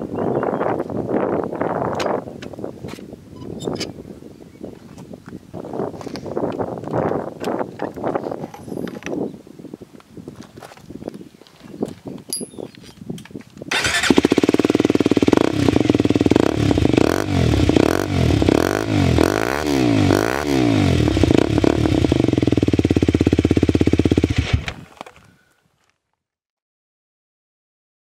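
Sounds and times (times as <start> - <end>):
motorcycle engine revving: 13.7 - 24.8.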